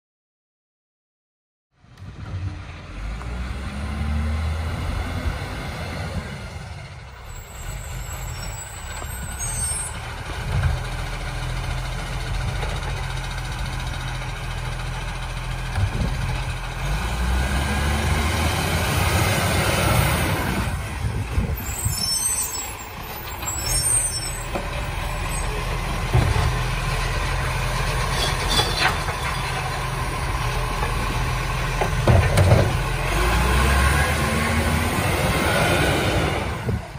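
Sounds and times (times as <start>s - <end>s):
garbage truck diesel engine: 1.9s - 36.9s
clunks: 23.0s - 27.0s, 27.8s - 30.0s, 30.7s - 33.0s.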